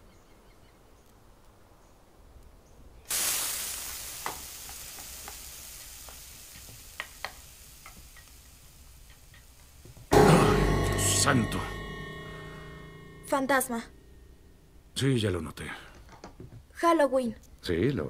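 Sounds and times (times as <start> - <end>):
bread sizzling in frying pan: 3.1 - 10.1.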